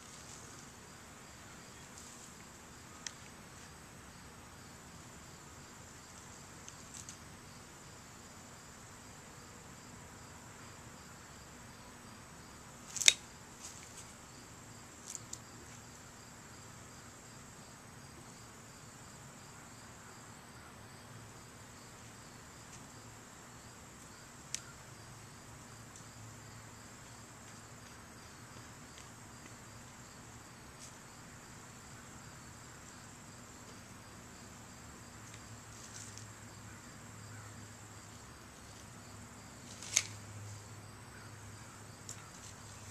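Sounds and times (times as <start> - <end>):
high-pitched insect chorus: 0.0 - 42.9
loppers snapping through stems: 12.9 - 13.2, 39.7 - 40.2.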